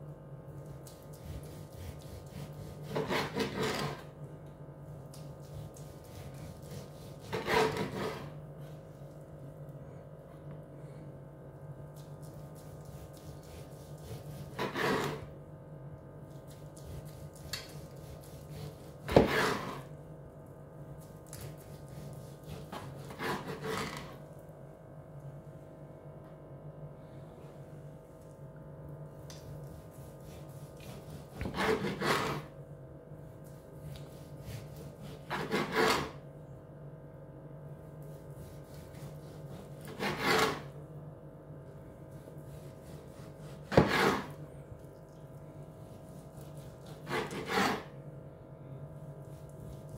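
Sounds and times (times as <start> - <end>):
steady low hum: 0.0 - 49.9
knife sawing through roast meat: 1.2 - 4.1, 5.4 - 8.4, 12.6 - 15.3, 16.8 - 19.9, 21.5 - 24.1, 29.7 - 32.5, 33.9 - 36.2, 38.1 - 40.8, 42.2 - 44.4, 45.8 - 48.0.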